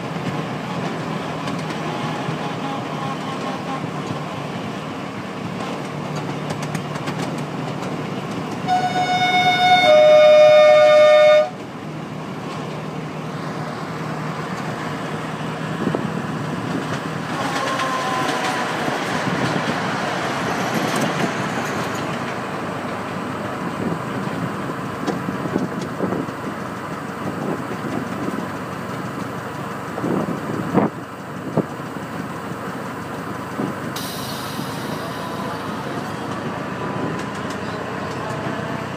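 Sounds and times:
two-note train horn: 0:01.8 - 0:04.1, 0:08.7 - 0:11.6, 0:17.3 - 0:18.6
miniature locomotive running: 0:16.8 - 0:23.0.

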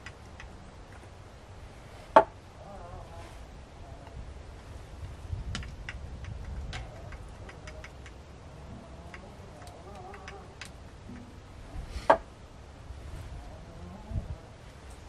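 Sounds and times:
small objects clicking on wooden table: 0:05.5 - 0:08.2, 0:09.1 - 0:10.8.

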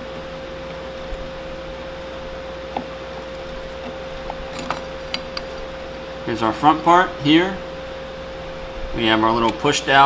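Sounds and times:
constant hum: 0:00.0 - 0:10.0.

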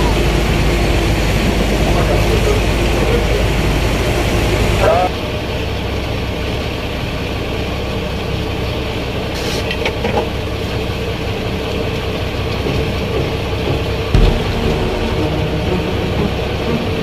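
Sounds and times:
brief knock: 0:14.2 - 0:15.9
low thump: 0:14.2 - 0:16.5
water noise: 0:14.2 - 0:16.6.

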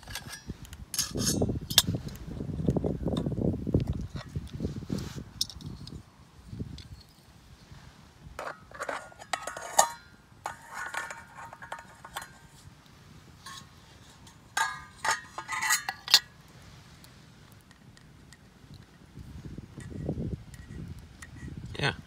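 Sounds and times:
metal pan and plate clinking: 0:08.4 - 0:12.5, 0:13.4 - 0:16.3.

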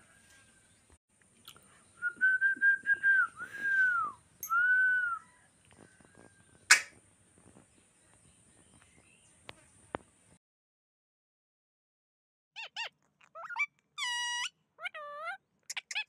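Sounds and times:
person whistling: 0:02.0 - 0:05.2.

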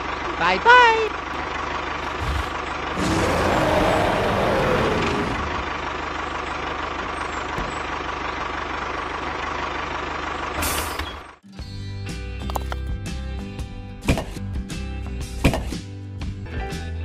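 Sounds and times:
truck engine running with hiss: 0:01.2 - 0:11.4.

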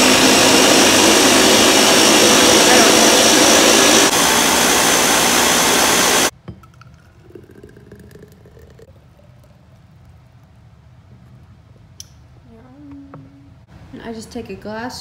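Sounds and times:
blender whirring: 0:00.0 - 0:06.3
smoothie pouring into glass jar: 0:04.3 - 0:10.3.

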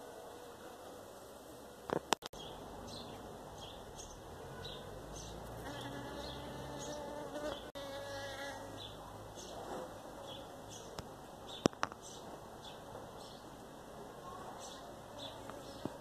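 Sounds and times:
bee buzzing: 0:05.4 - 0:08.9.

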